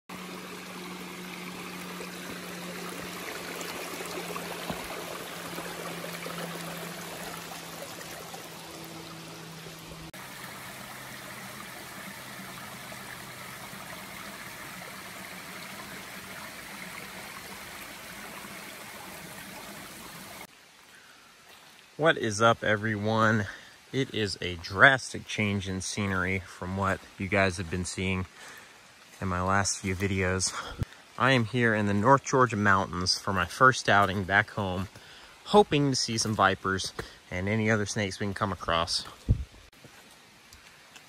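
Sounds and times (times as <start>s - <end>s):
faint steady hum: 0.1s - 21.9s
creek rushing over stones: 0.1s - 41.0s.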